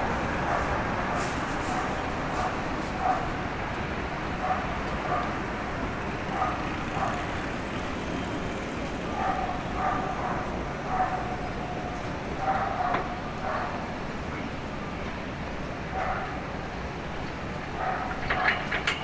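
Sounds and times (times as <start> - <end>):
street noise: 0.0 - 19.0
dog barking: 1.8 - 3.4, 4.4 - 5.4, 6.3 - 7.2, 9.2 - 11.4, 12.4 - 13.8, 15.9 - 16.4, 17.8 - 18.2.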